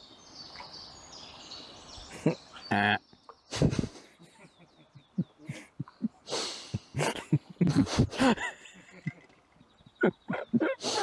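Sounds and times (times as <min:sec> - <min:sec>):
small bird chirping: 0:00.0 - 0:06.2, 0:08.6 - 0:11.0.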